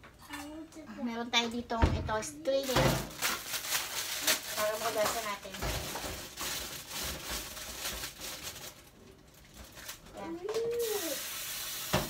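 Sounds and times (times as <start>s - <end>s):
handling noises at kitchen sink: 2.6s - 8.6s.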